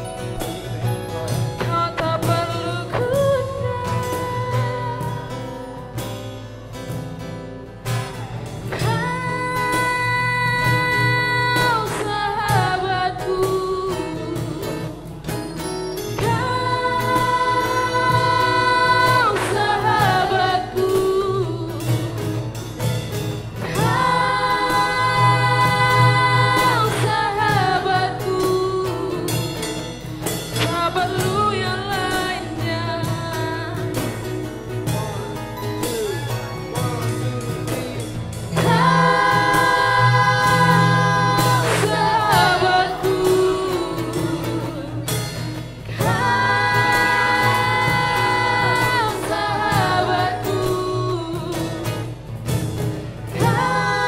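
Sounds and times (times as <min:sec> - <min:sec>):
instrumental backing: 0:00.0 - 0:54.0
group of voices singing: 0:08.7 - 0:15.2, 0:16.2 - 0:22.4, 0:23.6 - 0:52.3, 0:53.3 - 0:54.0.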